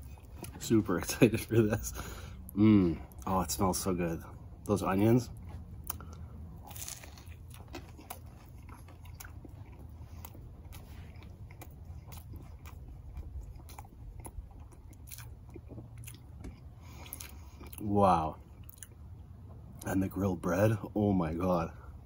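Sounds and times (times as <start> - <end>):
chewing with crunches: 0.0 - 20.2
biting into a sandwich: 5.4 - 17.9.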